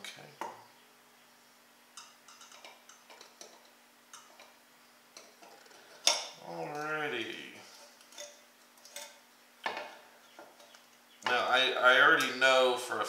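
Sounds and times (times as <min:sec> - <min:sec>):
small metal parts clicking: 0:02.0 - 0:04.6.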